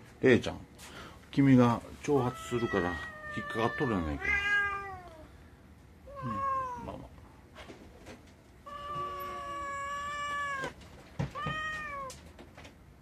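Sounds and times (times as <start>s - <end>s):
cat meowing: 2.2s - 5.3s, 6.1s - 7.0s, 8.6s - 12.2s.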